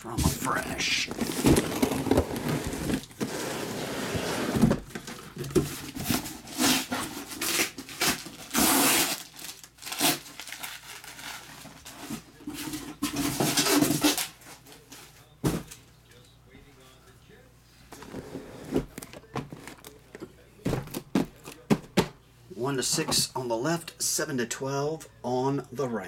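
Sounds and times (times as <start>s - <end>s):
cardboard and plastic rustling: 0.0s - 15.8s, 17.9s - 22.1s.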